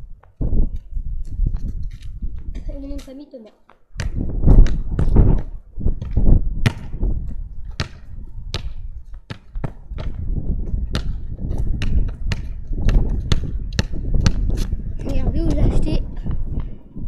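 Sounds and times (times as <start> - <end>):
football knocking and bouncing: 4.0 - 15.2.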